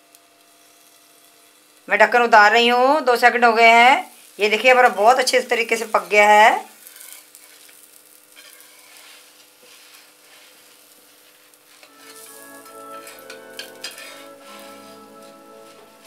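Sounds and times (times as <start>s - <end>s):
food sizzling faintly in oil: 0.0s - 16.0s
steel spatula scraping: 6.8s - 16.0s
background music: 11.9s - 16.0s.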